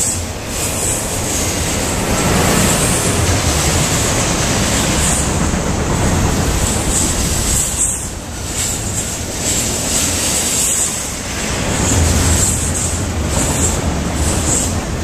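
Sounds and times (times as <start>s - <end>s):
freight train rumbling on rails: 0.0s - 15.0s.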